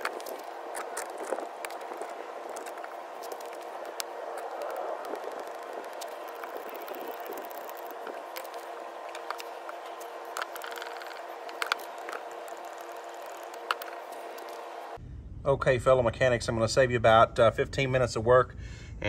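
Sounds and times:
grease gun clicks and squishes: 0:00.0 - 0:14.6
steady mechanical hum: 0:00.0 - 0:19.0.

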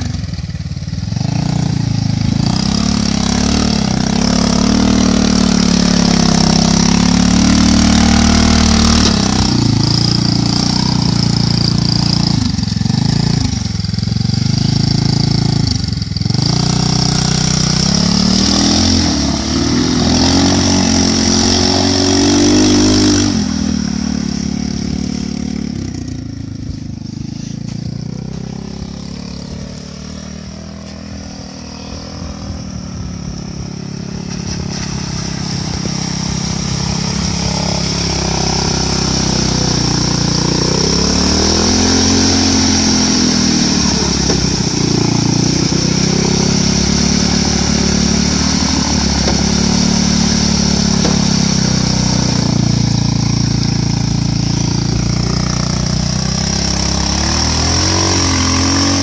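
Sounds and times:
motorcycle engine revving: 0:00.0 - 0:59.0
motorcycle ploughing through water: 0:00.0 - 0:59.0.

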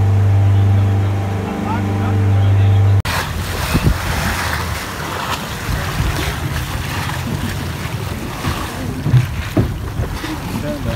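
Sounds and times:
wind buffeting microphone: 0:03.1 - 0:10.9.

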